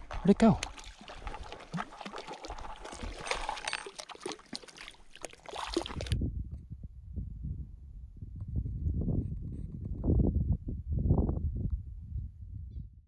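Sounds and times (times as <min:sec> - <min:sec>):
water splashing against rocks: 0:00.0 - 0:06.2.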